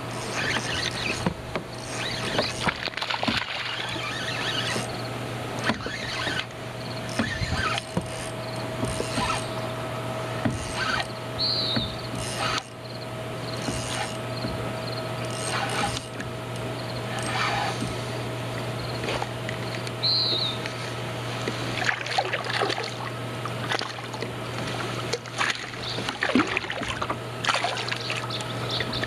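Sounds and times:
water splashing and trickling: 0:01.9 - 0:04.8, 0:21.6 - 0:29.0.

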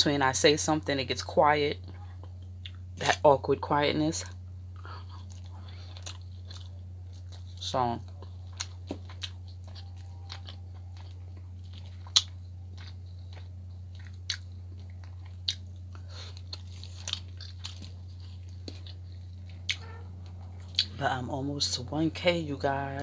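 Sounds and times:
low hum: 0:00.0 - 0:23.0
person chewing soft food: 0:01.8 - 0:03.0, 0:04.7 - 0:20.9.

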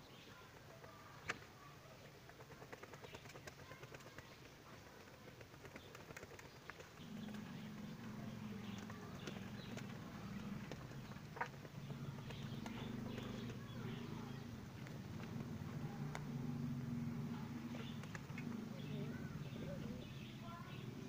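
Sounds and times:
scuffs of feet and wings: 0:00.2 - 0:21.0
pigeons cooing: 0:04.8 - 0:21.0.

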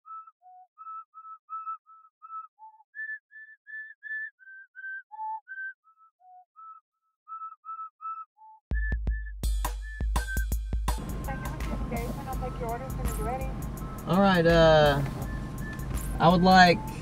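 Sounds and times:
person whistling a tune: 0:00.1 - 0:10.6, 0:15.2 - 0:16.1.

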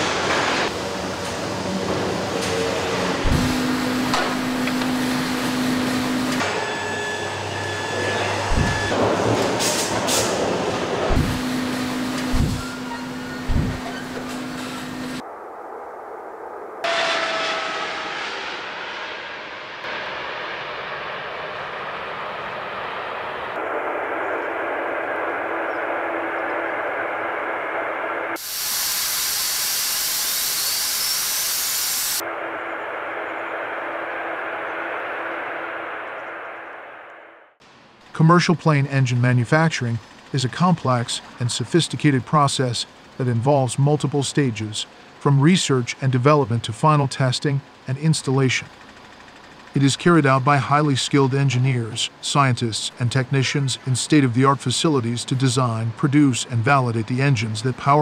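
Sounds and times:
jet engine roaring: 0:00.0 - 0:38.2
machine hum: 0:00.0 - 0:38.2
air noise: 0:00.0 - 0:46.6
jet engine whine: 0:00.0 - 0:58.0
low thumps: 0:03.2 - 0:06.4, 0:08.5 - 0:09.0, 0:11.1 - 0:11.6, 0:12.2 - 0:14.4.

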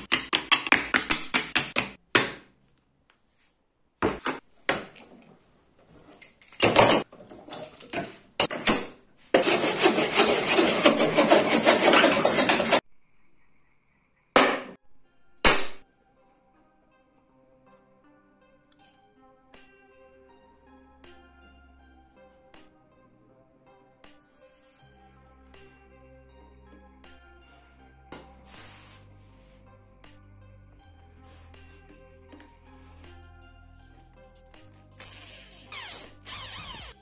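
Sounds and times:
short scrapes and knocks: 0:05.9 - 0:12.8
rasp strokes on wood: 0:09.4 - 0:12.8.

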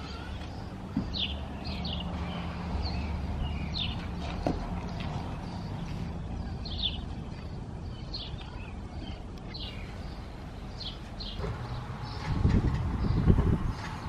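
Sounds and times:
bird chirping: 0:00.0 - 0:14.0
wind rumbling on microphone: 0:11.4 - 0:14.0.

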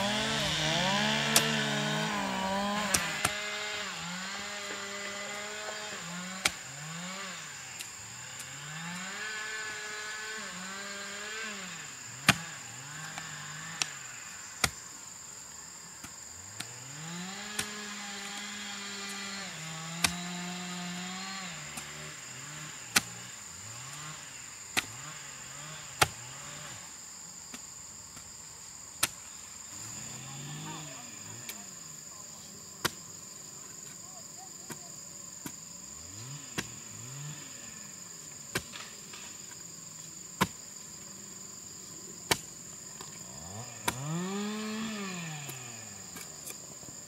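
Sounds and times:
small motor revving: 0:00.0 - 0:14.8, 0:16.4 - 0:27.0, 0:29.7 - 0:31.9, 0:35.9 - 0:39.6, 0:42.3 - 0:47.0.

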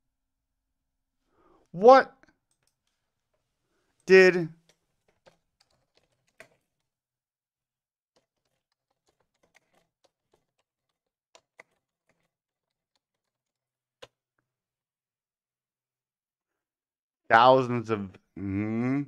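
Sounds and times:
typing on computer keyboard: 0:04.6 - 0:06.9, 0:08.1 - 0:14.2.

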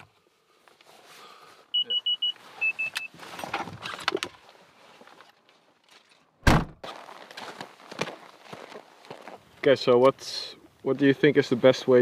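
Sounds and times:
car tailgate slamming shut: 0:06.4 - 0:06.8.

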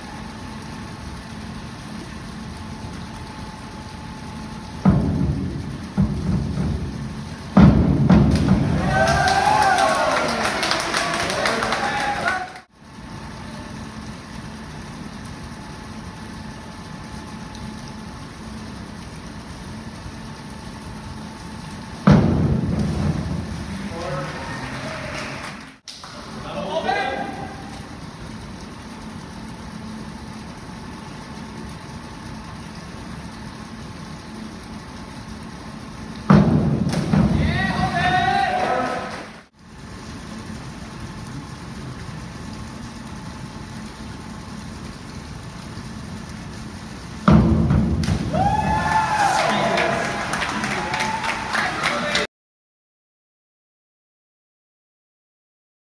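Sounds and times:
water jets pattering onto pool: 0:00.0 - 0:52.3
springboard bang with echo: 0:36.3 - 0:38.1.

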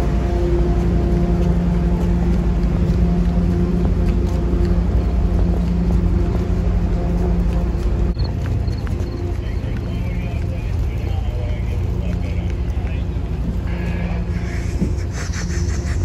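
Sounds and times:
suitcase wheels rolling on pavement: 0:00.0 - 0:14.2
low engine rumble and hum: 0:00.0 - 0:16.0.

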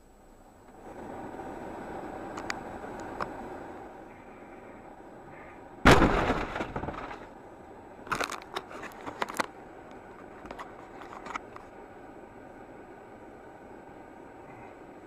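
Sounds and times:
vehicle crash: 0:05.8 - 0:07.4
sharp cracks and clatters: 0:05.9 - 0:07.4, 0:08.0 - 0:11.7.

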